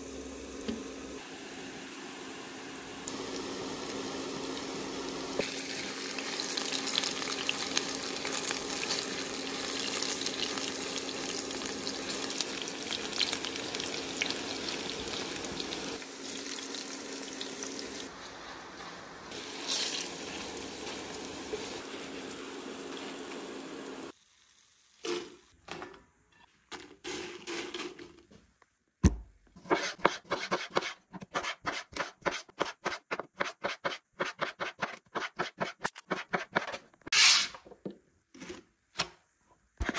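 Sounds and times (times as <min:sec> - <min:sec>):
vegetables sizzling in oil: 0:00.0 - 0:25.6.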